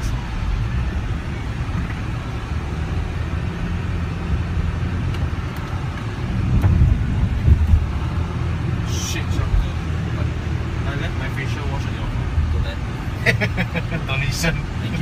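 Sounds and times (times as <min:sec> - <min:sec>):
car road noise rumble: 0:00.0 - 0:15.0
car bumps: 0:05.1 - 0:08.0.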